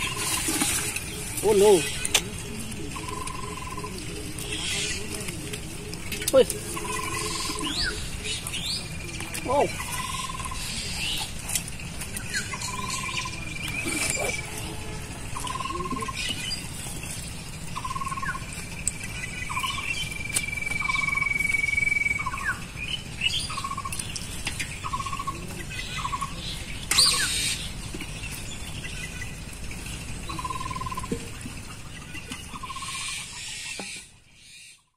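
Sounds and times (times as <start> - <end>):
bird calling: 0.0 - 34.9
thin steady high tone: 2.6 - 5.1, 6.3 - 8.4, 12.5 - 16.2, 17.8 - 22.6.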